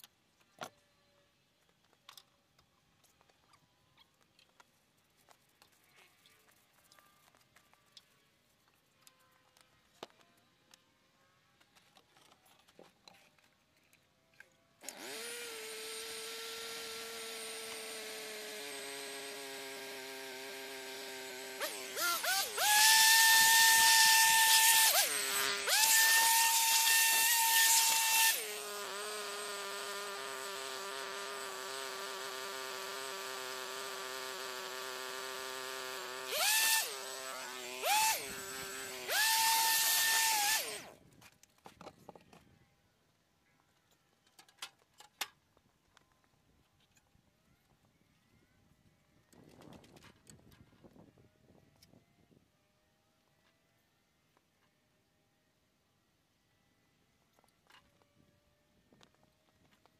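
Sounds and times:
power tool motor whine: 14.8s - 41.0s.

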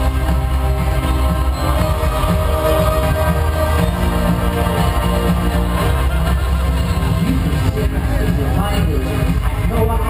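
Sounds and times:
loud live concert music: 0.0s - 10.0s.

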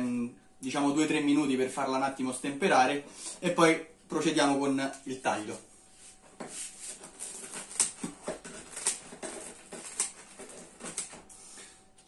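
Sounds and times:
scissors snipping crunchy crust: 7.1s - 11.2s.

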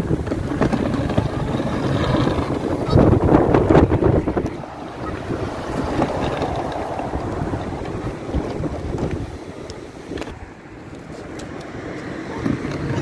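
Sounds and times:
vacuum cleaner wheels rattling on bricks: 0.0s - 9.6s
wind buffeting microphone: 0.0s - 13.0s.

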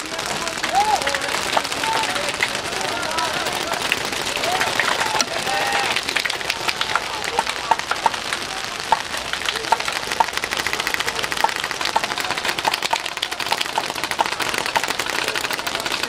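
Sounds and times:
paintball markers firing: 0.0s - 16.0s.

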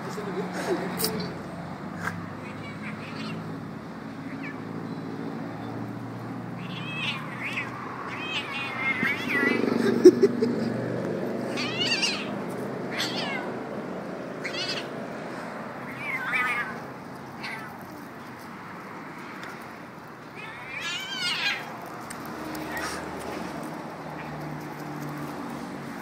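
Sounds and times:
kitten meowing: 2.4s - 3.5s, 6.6s - 9.6s, 11.5s - 13.5s, 14.4s - 14.9s, 15.8s - 17.8s, 20.4s - 21.7s.

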